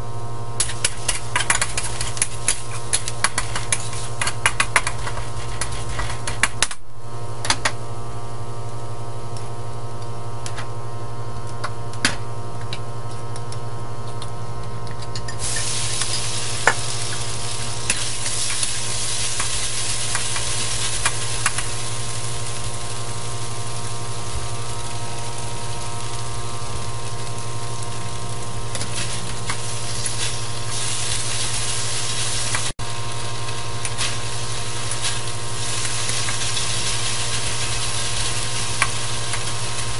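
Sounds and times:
steady hum: 0.0 - 39.9
beef sizzling in hot oil: 0.6 - 6.7, 15.4 - 39.9.

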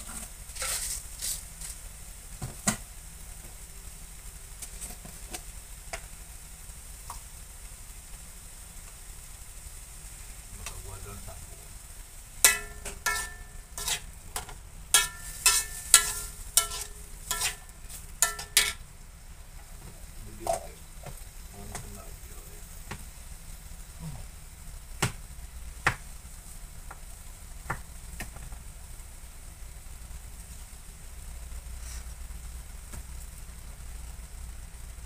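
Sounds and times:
spatula stirring in wok: 0.0 - 2.3, 11.7 - 21.8
low sizzle: 0.0 - 35.0
knocks against pan: 12.5 - 13.5.

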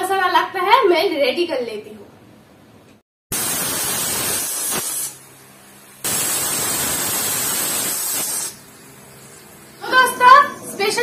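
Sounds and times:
pressure cooker steam hissing: 3.3 - 10.5.

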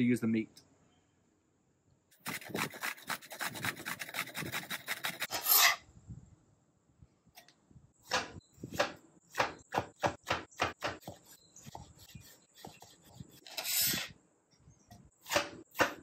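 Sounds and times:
knife blade scraping board: 2.5 - 5.8, 12.0 - 14.2
knife chopping on cutting board: 8.1 - 12.9.

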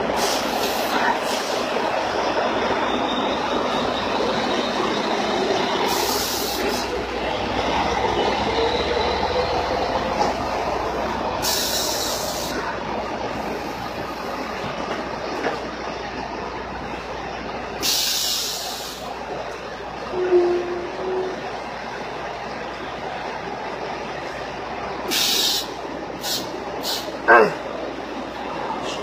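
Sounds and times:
short hisses: 25.1 - 27.1.

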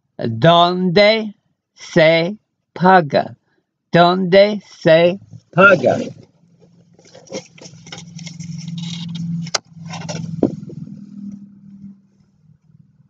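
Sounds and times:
low steady hum: 5.1 - 13.0
book rustling and rubbing: 5.4 - 11.4.

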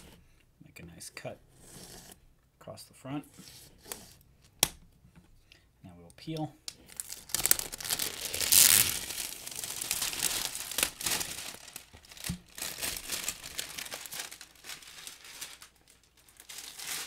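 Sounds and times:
shrink wrap crinkling: 6.8 - 17.0.

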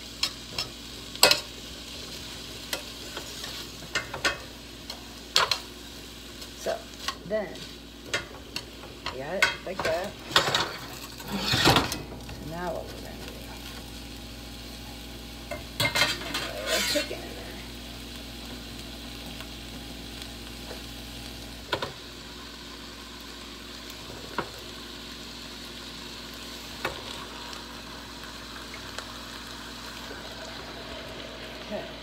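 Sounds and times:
onions sizzling in a pan: 0.0 - 32.0
utensil scraping a pan: 9.7 - 12.0, 15.8 - 17.3.

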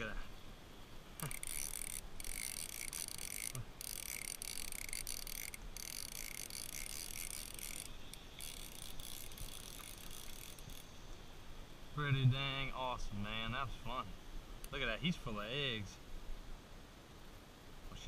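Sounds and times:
insects buzzing: 0.0 - 12.8.

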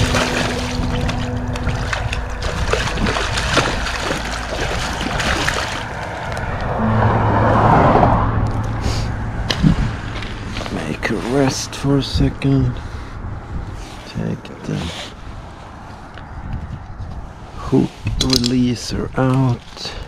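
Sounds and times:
water splashing against a boat: 0.0 - 6.5.

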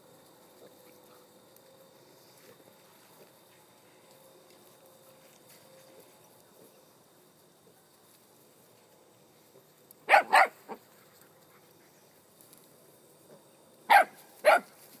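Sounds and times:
dog barking: 10.1 - 10.8, 13.9 - 14.7.

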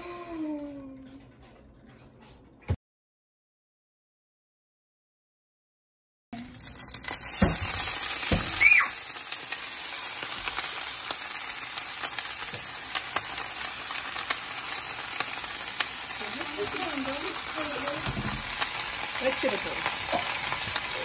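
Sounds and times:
cabbage sizzling in hot fat: 6.4 - 21.0
frying with small pops: 6.4 - 21.0.

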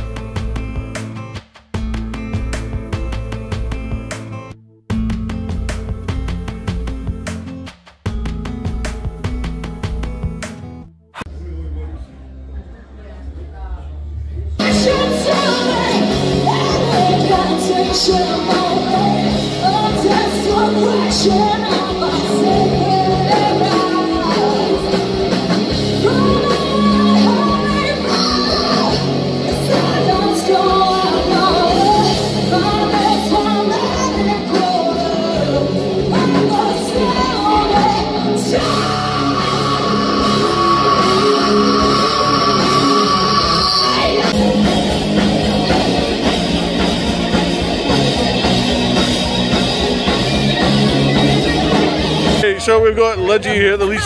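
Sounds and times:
live rock band: 0.0 - 10.9, 14.6 - 54.0
woman singing: 14.6 - 44.3.

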